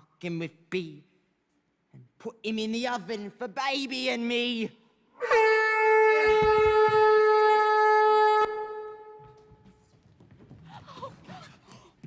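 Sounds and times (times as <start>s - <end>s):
shrill steam whistle: 5.2s - 9.2s.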